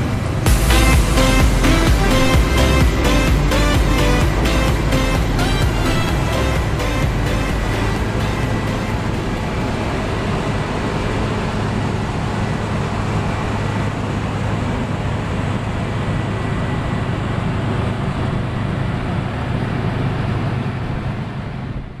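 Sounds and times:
combine harvester threshing hum: 0:00.0 - 0:22.0.

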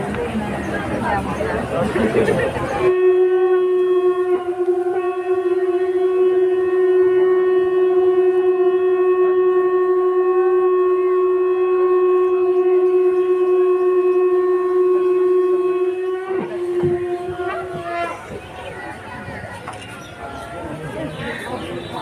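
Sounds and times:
conch shell blown in a long note: 0:02.8 - 0:19.0.

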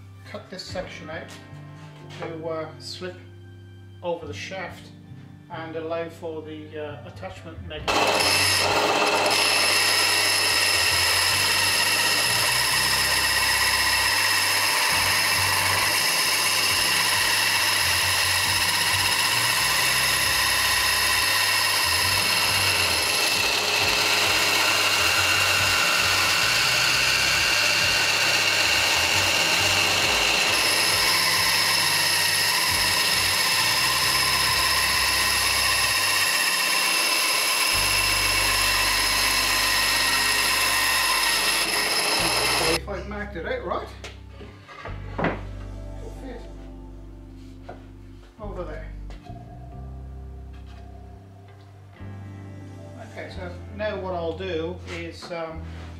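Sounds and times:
bandsaw cutting board: 0:07.9 - 0:42.9.

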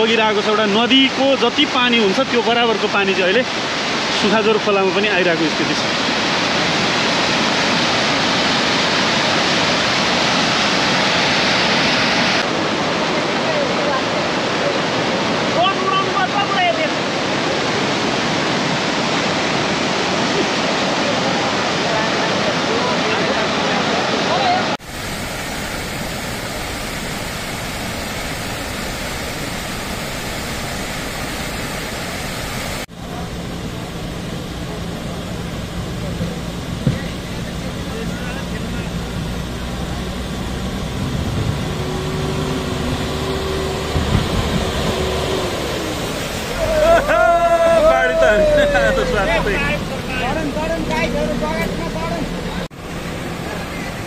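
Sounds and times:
water rushing: 0:00.0 - 0:54.0
diesel engine humming: 0:24.8 - 0:54.0
floodwater pouring over edge: 0:24.8 - 0:54.0.

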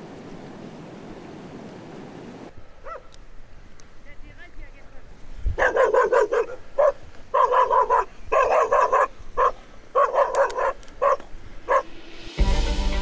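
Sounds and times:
dog barking: 0:02.8 - 0:03.1, 0:05.6 - 0:11.9.

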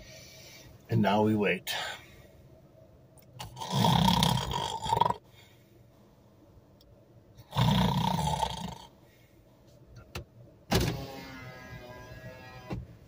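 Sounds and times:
man fake snoring: 0:03.4 - 0:05.2, 0:07.4 - 0:09.0.

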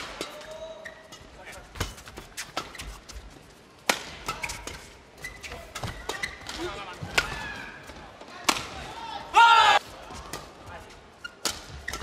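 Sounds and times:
rackets hitting shuttlecock: 0:03.8 - 0:04.8, 0:11.4 - 0:12.0.

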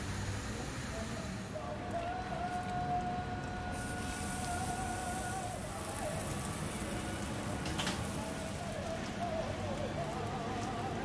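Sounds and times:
patties sizzling on a griddle: 0:03.5 - 0:11.0.

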